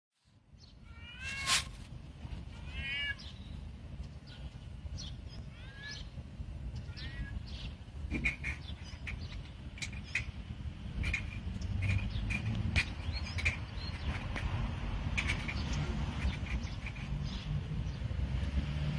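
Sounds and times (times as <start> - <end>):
cat meowing: 0.8 - 1.7, 2.5 - 3.4, 5.4 - 6.2, 6.8 - 7.6.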